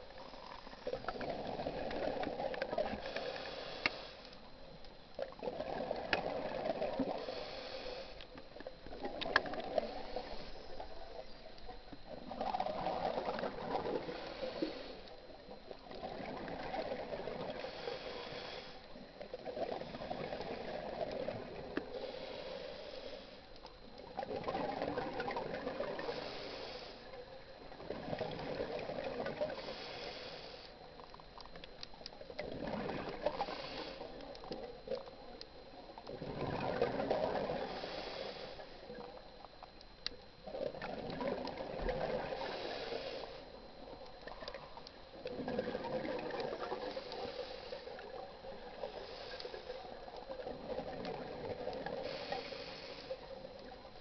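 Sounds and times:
exhaled bubbles gurgling: 0.0 - 4.1, 5.2 - 22.9, 23.8 - 54.0
regulator inhale hiss: 2.8 - 4.5, 7.0 - 8.3, 9.3 - 11.0, 13.4 - 15.2, 16.9 - 23.7, 25.7 - 27.1, 29.3 - 30.8, 33.1 - 34.6, 37.2 - 39.2, 42.2 - 43.6, 46.2 - 50.9, 51.6 - 53.8.

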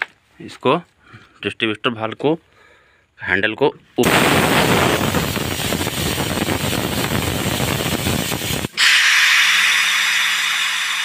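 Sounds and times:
air brake hissing: 8.0 - 11.0.

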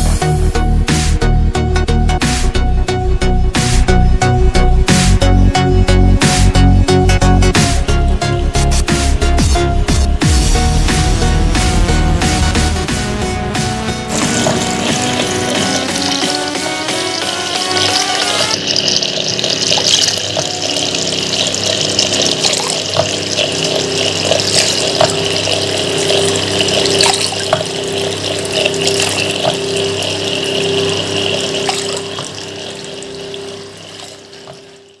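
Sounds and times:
water pouring and splashing: 14.1 - 35.0.

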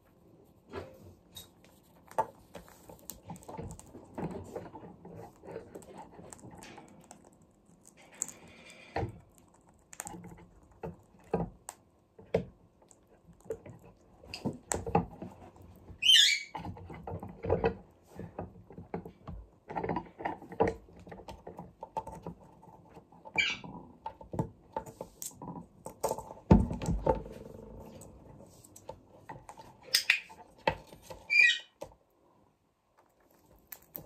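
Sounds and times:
parakeet chirping: 16.0 - 16.6, 23.4 - 23.6, 31.2 - 31.8.

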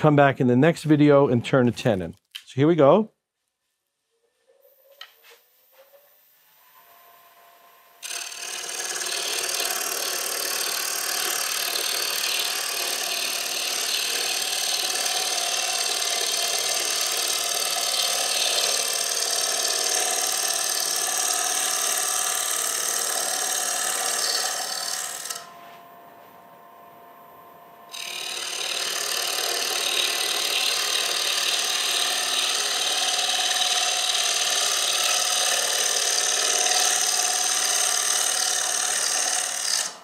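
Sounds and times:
lathe cutter shaving wood: 8.0 - 25.5, 27.9 - 40.0.

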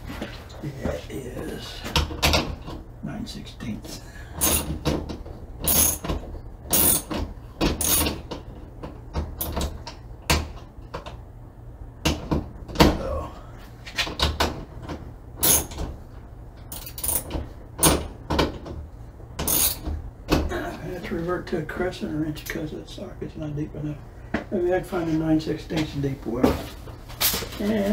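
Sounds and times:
metal socket clinking and scraping: 4.4 - 4.7, 15.4 - 15.8, 16.7 - 17.3, 19.4 - 19.8.

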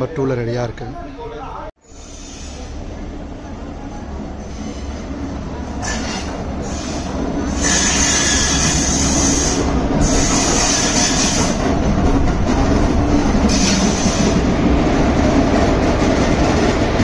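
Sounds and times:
train rumbling on track: 1.8 - 17.0
high-pitched wheel squeal: 5.8 - 11.5.

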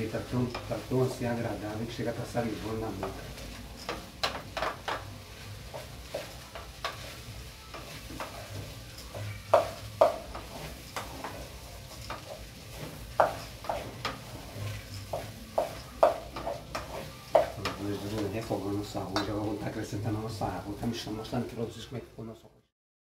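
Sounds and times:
faint sizzle of frying: 0.0 - 22.7
spoon scraping in metal pot: 10.3 - 17.8.

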